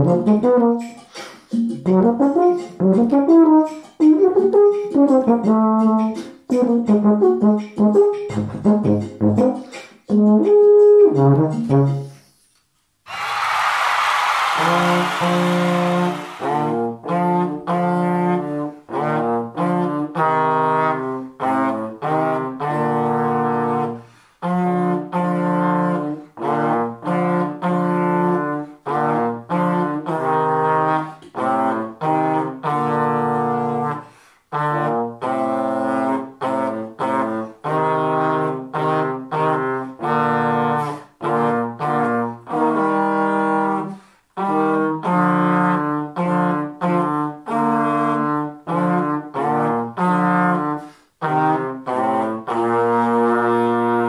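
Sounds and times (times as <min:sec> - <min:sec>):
trombone duet: 0:00.0 - 0:01.0, 0:01.8 - 0:12.1, 0:14.6 - 0:54.0.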